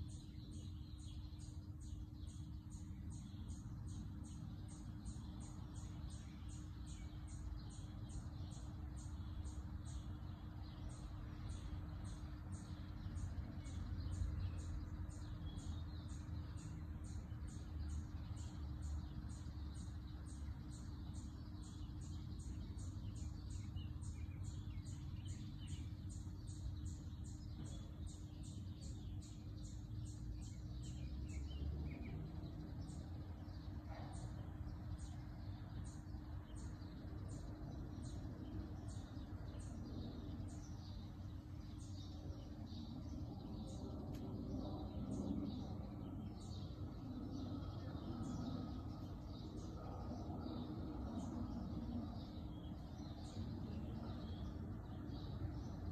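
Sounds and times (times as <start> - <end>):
steady hum: 0.0 - 55.9.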